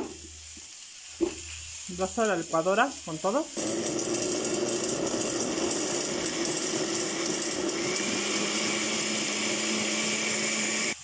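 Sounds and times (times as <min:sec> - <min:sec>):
blender running: 0:03.6 - 0:11.0.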